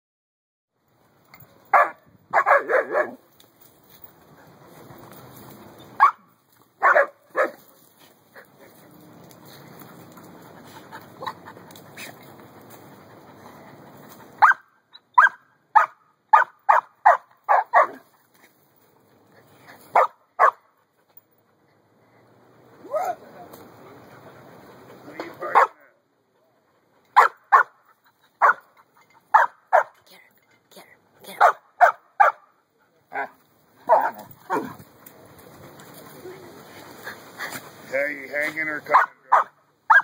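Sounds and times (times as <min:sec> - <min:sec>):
dogs barking: 0:01.7 - 0:03.2, 0:06.0 - 0:07.6, 0:14.4 - 0:18.0, 0:19.9 - 0:20.7, 0:25.5 - 0:25.9, 0:27.1 - 0:28.7, 0:29.3 - 0:30.0, 0:31.4 - 0:32.5, 0:33.1 - 0:34.8, 0:38.9 - 0:40.0.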